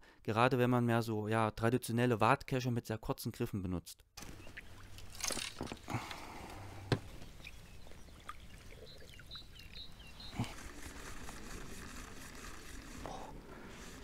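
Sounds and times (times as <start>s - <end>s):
small bird chirping: 7.1s - 11.4s.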